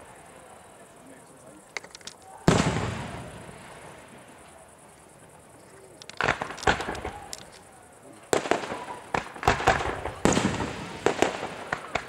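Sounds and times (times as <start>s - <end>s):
fireworks bursting: 0.0s - 12.0s
firework pops and crackles: 1.7s - 4.2s, 5.9s - 12.0s
loud firework bangs: 2.4s - 4.2s, 6.2s - 7.3s, 8.3s - 12.0s.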